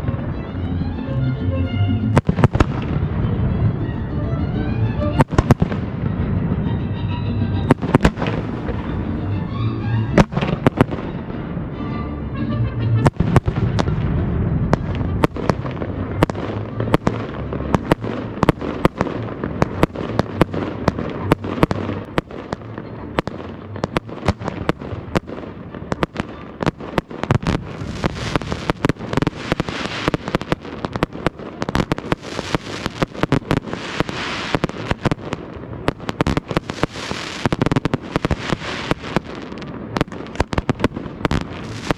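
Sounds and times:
fireworks bursts: 2.1s - 4.1s, 5.0s - 6.7s, 7.6s - 11.7s, 13.0s - 41.9s
fireworks crackling hiss: 25.9s - 41.9s.

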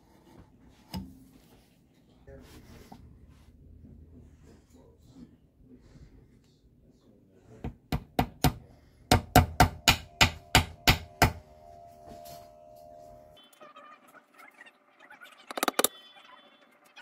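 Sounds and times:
faint steady ringing tone: 8.7s - 14.4s.

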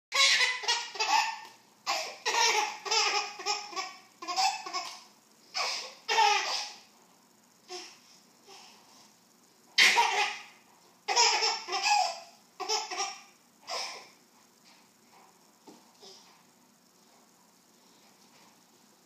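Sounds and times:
baby laughing: 0.2s - 6.8s, 9.8s - 10.5s, 11.1s - 14.0s.

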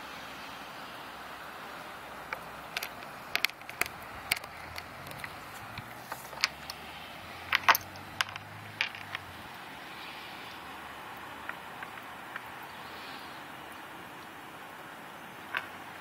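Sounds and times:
steady hiss of sleet: 0.0s - 16.0s
ice pellets ticking on surfaces: 2.3s - 6.8s, 7.4s - 9.4s, 11.4s - 12.6s.

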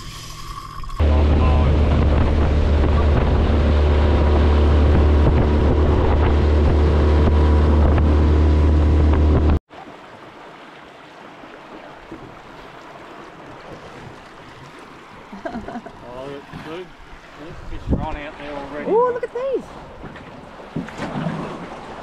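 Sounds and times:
water rushing past hull: 0.0s - 22.0s
wind: 0.0s - 22.0s
outboard motor drone: 1.0s - 9.6s.

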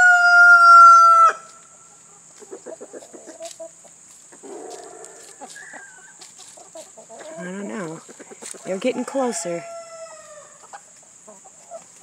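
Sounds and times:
young rooster crowing: 0.0s - 1.6s, 9.0s - 10.6s
hen clucking: 1.8s - 12.0s.

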